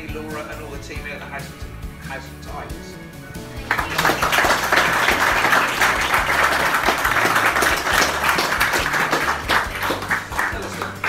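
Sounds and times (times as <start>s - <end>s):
crowd applauding: 3.5s - 11.0s.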